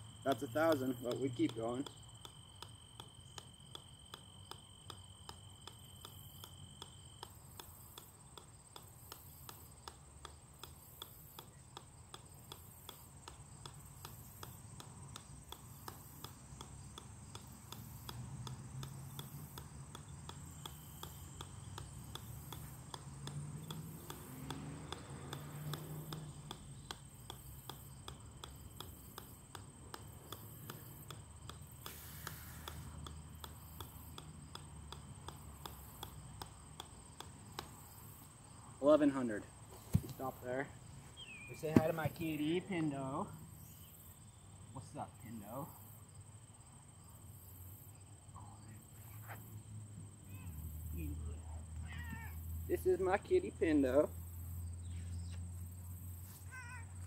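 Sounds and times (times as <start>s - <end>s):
golf ball bouncing on metal: 0.2s - 40.5s, 41.2s - 43.1s.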